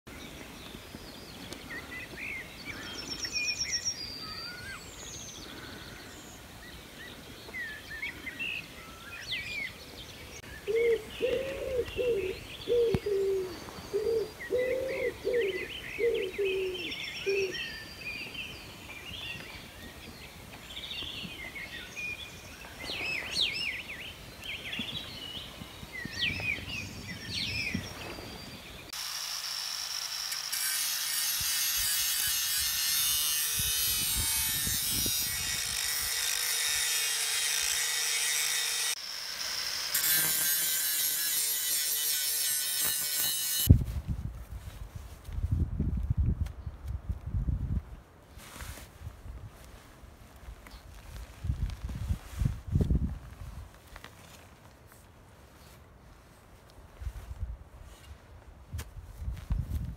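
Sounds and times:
songbirds chirping: 0:00.1 - 0:29.0
pigeon cooing: 0:10.7 - 0:17.6.

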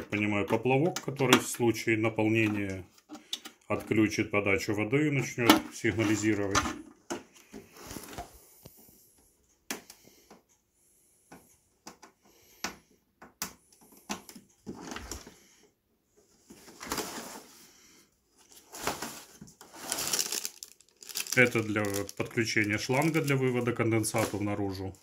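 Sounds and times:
hands rubbing plastic casing: 0:19.6 - 0:24.5.

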